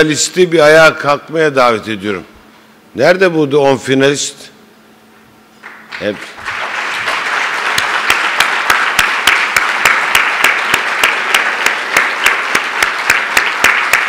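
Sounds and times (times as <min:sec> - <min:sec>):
man clapping near microphone: 0:05.6 - 0:14.0
audience applause: 0:05.7 - 0:14.0.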